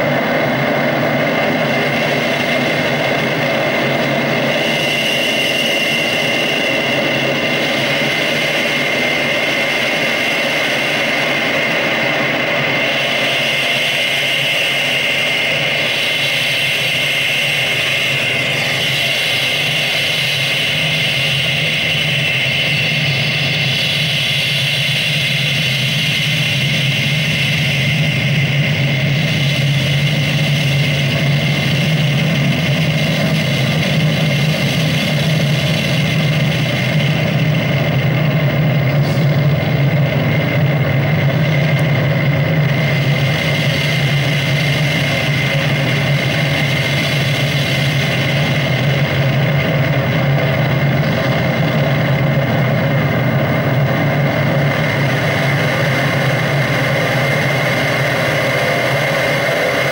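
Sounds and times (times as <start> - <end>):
electronic drone of high tones: 0.0 - 59.9
low hum: 0.0 - 59.9.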